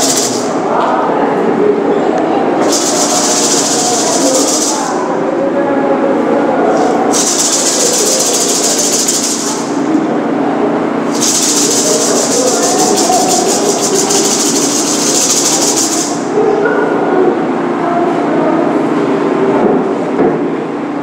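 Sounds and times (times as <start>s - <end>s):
gourd rattle shaken: 0.0s - 0.6s, 2.6s - 5.0s, 7.1s - 9.8s, 11.1s - 16.3s.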